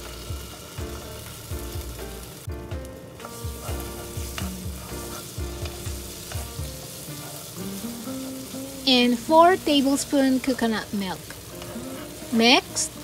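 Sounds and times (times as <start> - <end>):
background music with steady beat: 0.0 - 10.1
paste sizzling in hot oil: 0.0 - 13.0.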